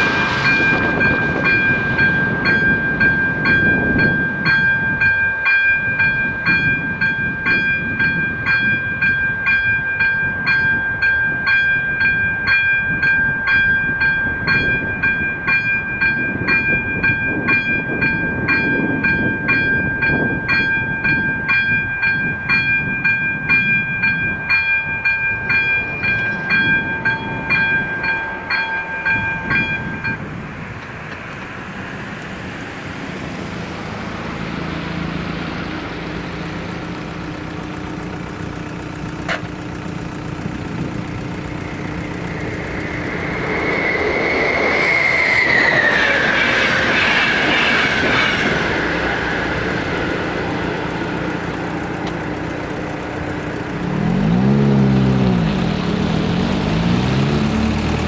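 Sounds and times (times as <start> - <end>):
steady high tone: 0.0 - 30.8, 31.6 - 54.0
level crossing warning bell: 0.0 - 43.4, 48.0 - 54.4
low rumble: 25.2 - 57.8.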